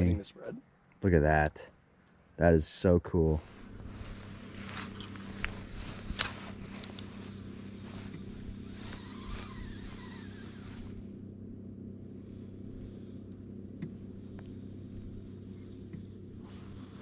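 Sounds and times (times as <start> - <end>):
boat motor humming: 3.4 - 17.0
faint ticks: 13.2 - 16.3.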